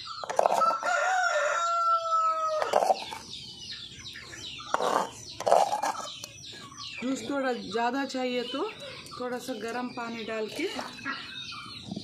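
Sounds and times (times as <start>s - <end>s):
chicken clucking: 0.0s - 7.2s
rooster crowing: 0.6s - 2.7s.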